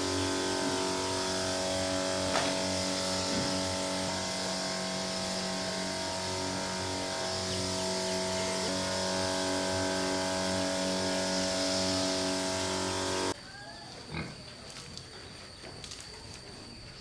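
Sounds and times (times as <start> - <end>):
spray hissing from wand: 0.0 - 13.4
sprayer pump humming: 0.0 - 13.4.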